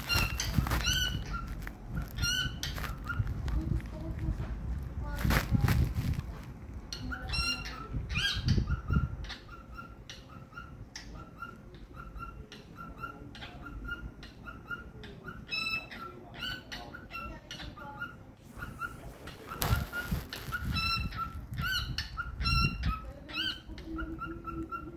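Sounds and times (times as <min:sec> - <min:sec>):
cockatiel chirping: 0:00.0 - 0:03.4, 0:06.9 - 0:24.9.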